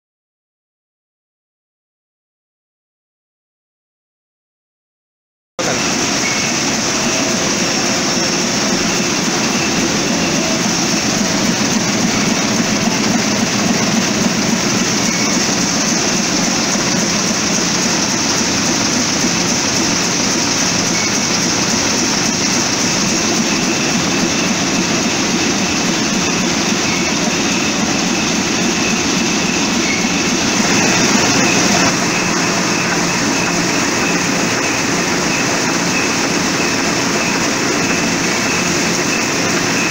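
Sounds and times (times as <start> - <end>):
printing press running: 5.6 - 39.9.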